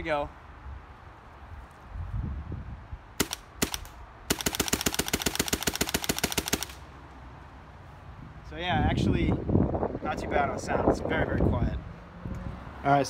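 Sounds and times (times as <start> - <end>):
paintball marker firing: 3.2 - 6.8.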